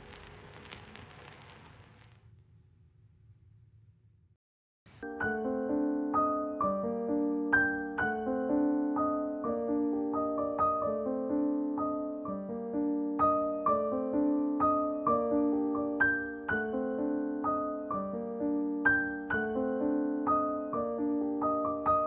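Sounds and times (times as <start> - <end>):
soft piano notes: 5.0 - 22.0.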